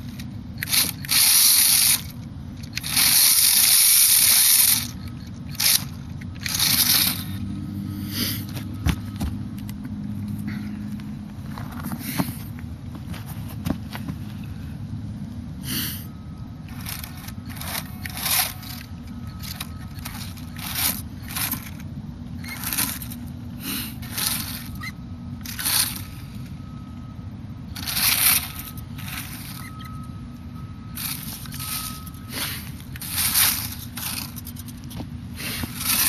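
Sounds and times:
steady low rumble: 0.0s - 36.0s
faint thin whine: 24.0s - 36.0s.

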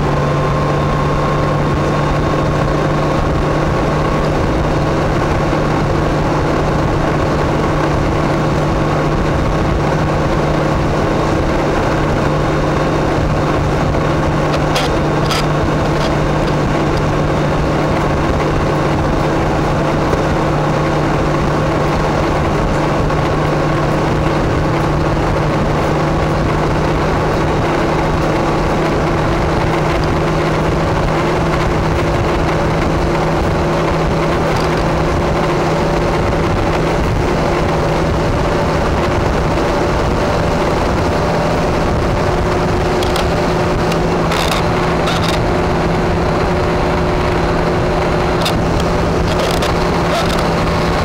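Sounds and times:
car engine cruising: 0.0s - 51.0s
wind and road noise: 0.0s - 51.0s.

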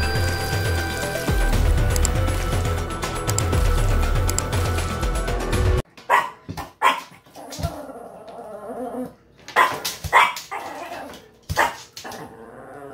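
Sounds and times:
music: 0.0s - 5.8s
small dog barking: 6.1s - 7.2s, 9.6s - 10.8s, 11.6s - 11.9s.

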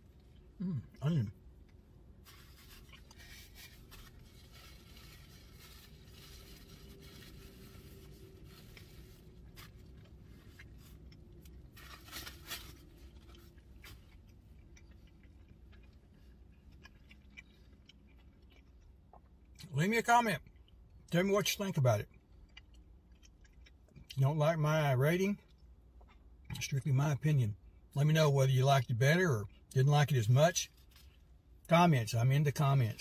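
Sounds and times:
chewing crunchy pizza: 7.2s - 19.7s, 20.4s - 24.3s.

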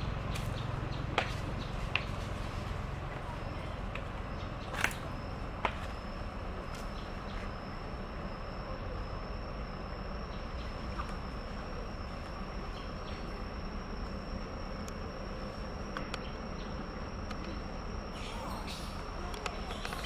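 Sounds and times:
outdoor background noise: 0.0s - 20.0s
high-pitched insect drone: 7.6s - 20.0s.

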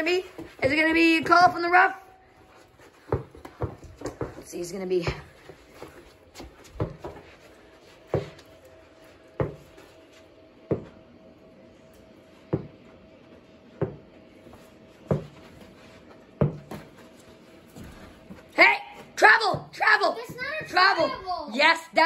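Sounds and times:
basketball bouncing on carpet: 2.9s - 7.4s, 8.1s - 8.5s, 9.4s - 9.8s, 10.7s - 10.9s, 12.5s - 12.8s, 13.8s - 14.0s, 15.0s - 15.6s, 16.4s - 17.0s, 19.4s - 21.2s.

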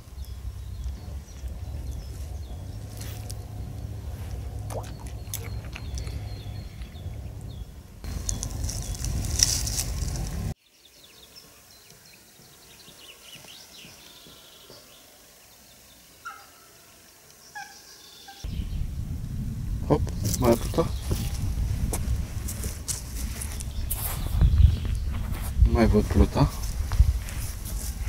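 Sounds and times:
wind buffeting microphone: 0.0s - 10.6s, 18.4s - 28.0s
birds chirping: 0.0s - 28.0s.

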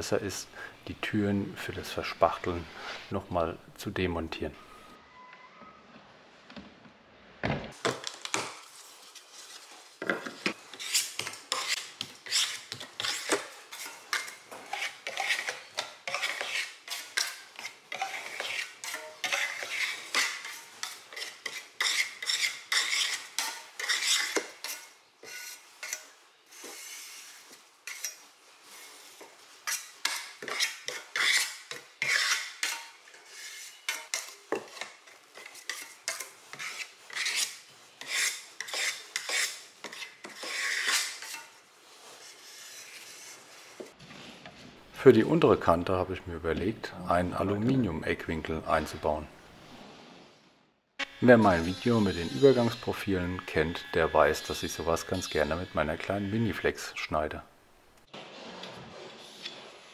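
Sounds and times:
putty knife scraping metal trowel: 10.2s - 43.9s, 58.2s - 59.9s.

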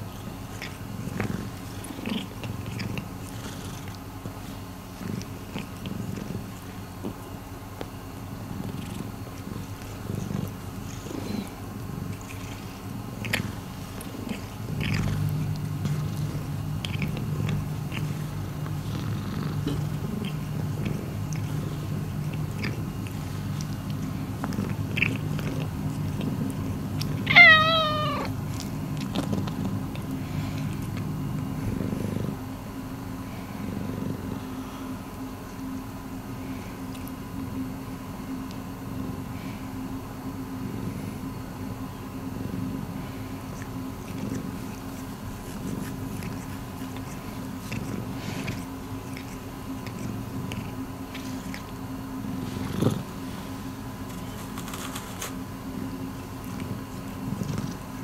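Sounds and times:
cat purring: 0.0s - 35.0s, 40.5s - 58.0s
high wavering cat call: 27.2s - 28.3s
cat licking clicks: 45.5s - 51.7s.

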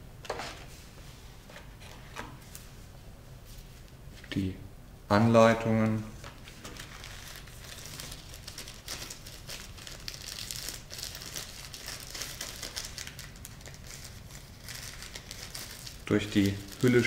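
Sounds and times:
plastic packaging crinkling: 6.2s - 17.0s.

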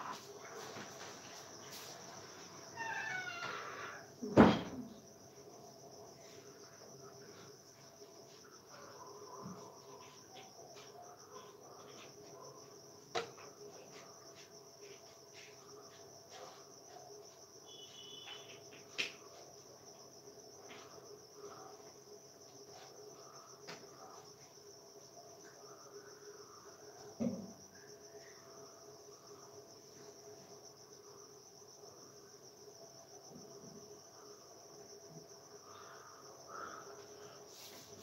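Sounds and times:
high-pitched insect trilling: 2.6s - 4.1s.

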